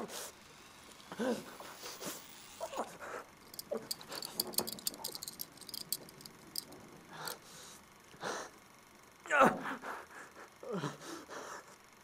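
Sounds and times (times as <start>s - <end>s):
fast light clicking and rattling: 3.4s - 7.4s.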